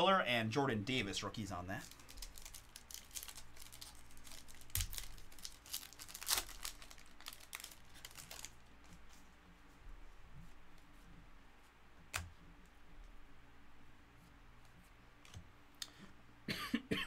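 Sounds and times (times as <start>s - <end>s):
foil wrapper tearing and crinkling: 1.8s - 8.6s.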